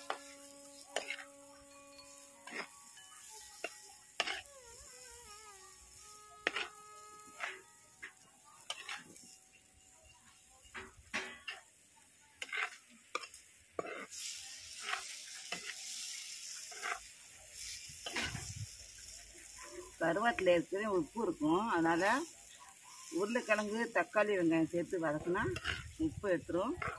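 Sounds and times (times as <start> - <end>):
spoon scraping clay pot: 0.0 - 5.5, 6.4 - 9.4, 12.4 - 15.9, 16.6 - 18.5, 25.2 - 26.0
curry sizzling: 0.0 - 26.9.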